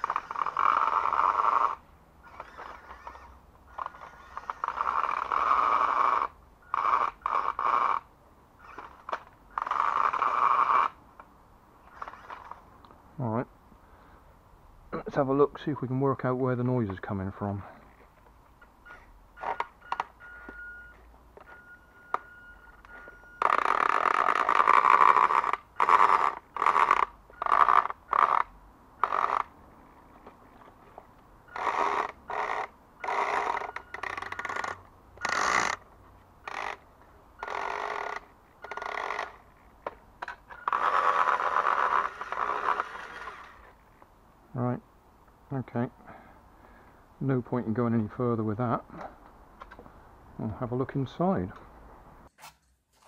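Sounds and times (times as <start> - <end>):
toy truck motor and gearbox: 0.0 - 11.0, 11.8 - 12.6, 18.8 - 29.5, 30.6 - 43.8
faint steady whine: 17.6 - 47.4.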